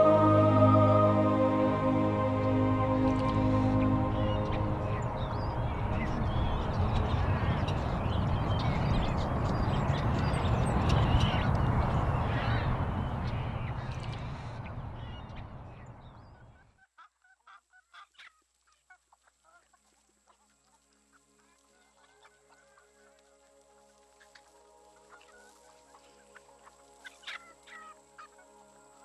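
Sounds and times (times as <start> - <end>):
flock of birds calling: 0.0 - 15.4, 24.2 - 29.0.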